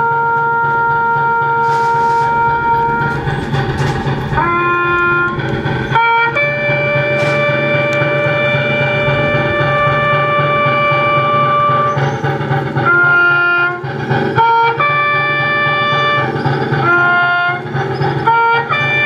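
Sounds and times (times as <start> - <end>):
bugle playing long held notes: 0.0 - 12.0, 12.8 - 19.0.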